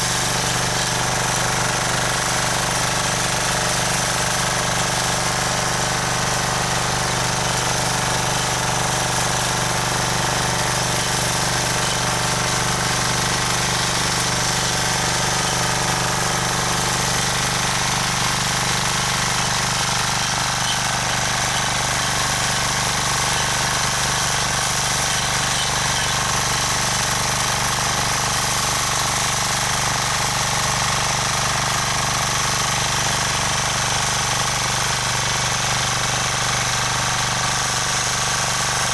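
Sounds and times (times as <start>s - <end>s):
tiller engine running: 0.0s - 38.9s.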